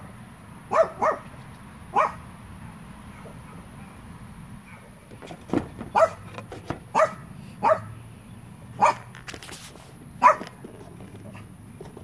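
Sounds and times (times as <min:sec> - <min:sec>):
dog barking: 0:00.7 - 0:01.3, 0:01.9 - 0:02.2, 0:03.1 - 0:04.0, 0:05.9 - 0:06.2, 0:06.9 - 0:08.0, 0:08.8 - 0:09.1, 0:10.2 - 0:10.5.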